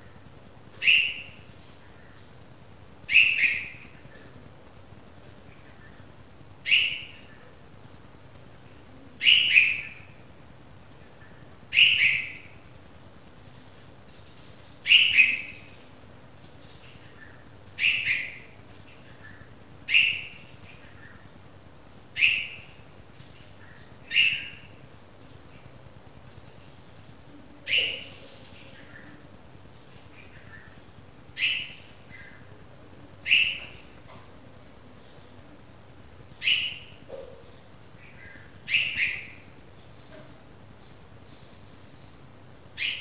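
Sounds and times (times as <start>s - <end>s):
bird fledgling calling: 0.8s - 1.4s, 3.1s - 3.9s, 11.7s - 12.5s, 23.7s - 24.7s, 30.2s - 32.5s, 33.2s - 34.0s, 36.4s - 37.0s, 38.0s - 39.5s.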